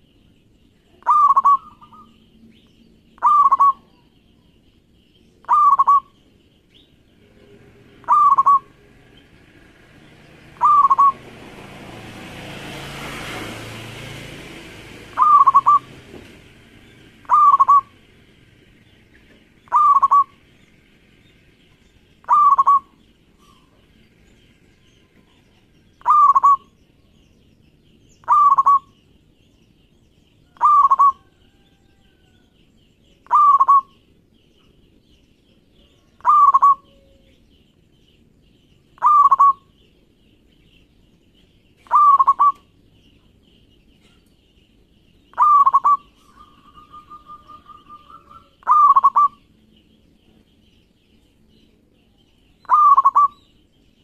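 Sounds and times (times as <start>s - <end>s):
dove cooing: 1.0s - 2.2s, 3.2s - 3.9s, 5.4s - 6.2s, 8.0s - 8.8s, 10.6s - 11.2s, 15.1s - 15.9s, 17.2s - 18.0s, 19.7s - 20.4s, 22.2s - 23.6s, 26.0s - 26.7s, 28.2s - 28.9s, 30.5s - 32.3s, 33.2s - 33.9s, 35.9s - 37.2s, 39.0s - 39.7s, 41.8s - 42.7s, 45.3s - 49.5s, 52.6s - 53.4s.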